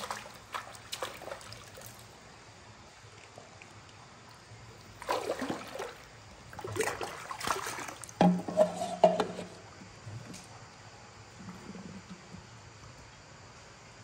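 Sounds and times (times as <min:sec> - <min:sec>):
water splashing in a stream: 0:00.0 - 0:02.3, 0:03.1 - 0:08.4.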